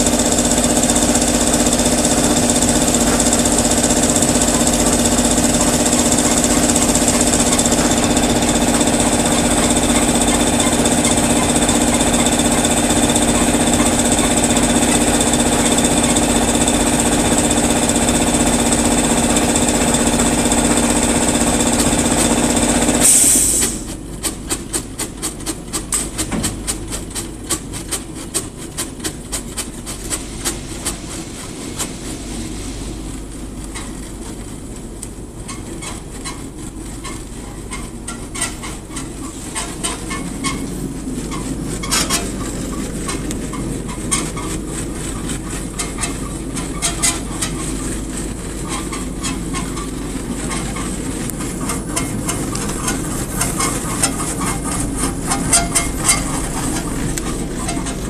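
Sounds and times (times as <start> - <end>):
fast regular clicking rattle: 0.0 - 23.0, 35.0 - 58.0
machine humming with hiss: 0.0 - 58.0.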